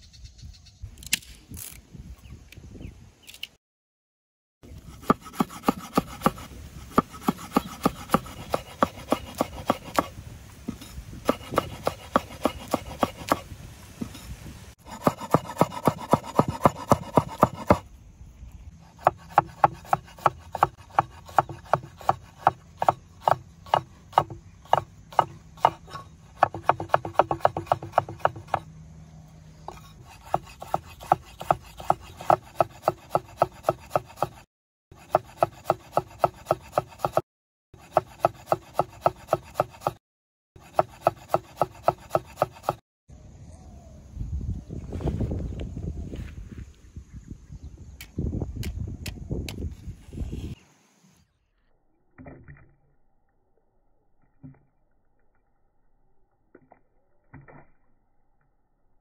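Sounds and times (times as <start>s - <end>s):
knife chopping on wooden board: 5.0s - 10.1s, 11.2s - 13.4s, 14.9s - 17.8s, 19.0s - 28.7s, 29.7s - 37.2s, 37.8s - 40.0s, 40.6s - 42.8s.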